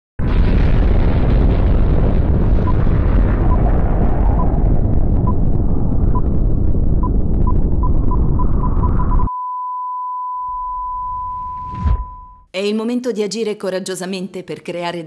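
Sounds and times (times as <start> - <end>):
explosion low rumble: 0.2 - 9.3, 11.0 - 12.5
high electronic beep: 7.0 - 12.5.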